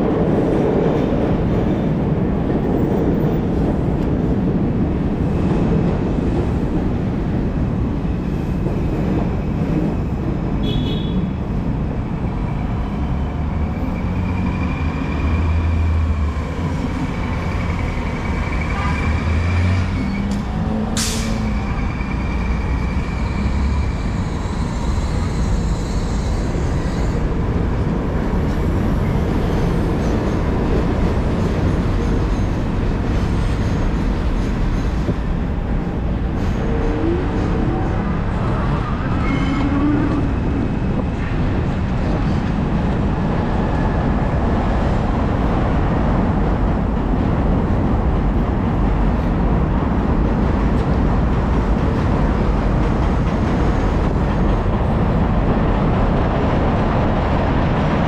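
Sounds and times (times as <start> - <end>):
low traffic rumble: 0.0 - 58.0
road noise: 0.0 - 58.0.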